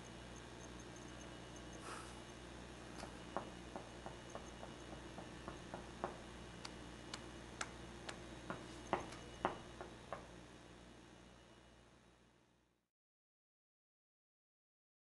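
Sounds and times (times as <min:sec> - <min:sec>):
steady low hum: 0:00.0 - 0:12.8
faint irregular clicks: 0:05.7 - 0:08.2.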